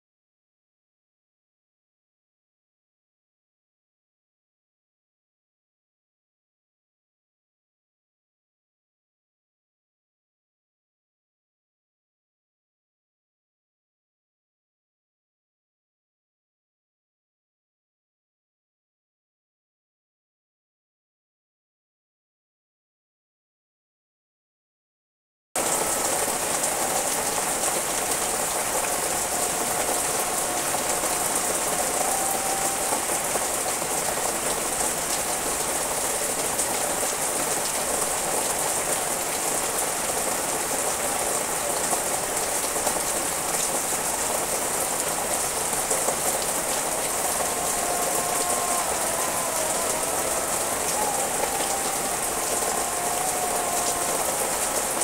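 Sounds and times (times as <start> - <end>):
rain falling on leaves: 25.6 - 55.0.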